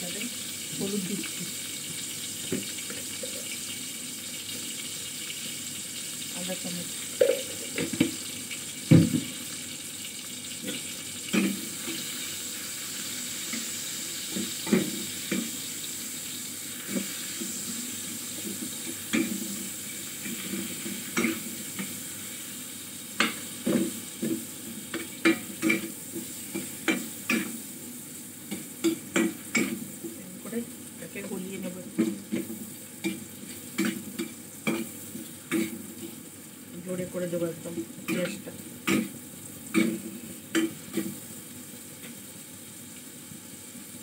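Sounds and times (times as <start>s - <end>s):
vegetables sizzling in oil: 0.0s - 44.0s
spoon scraping and knocking pan: 7.2s - 8.2s, 10.6s - 12.2s, 13.5s - 15.6s, 16.8s - 22.0s, 23.2s - 27.6s, 28.5s - 30.2s, 31.9s - 36.2s, 38.1s - 41.2s.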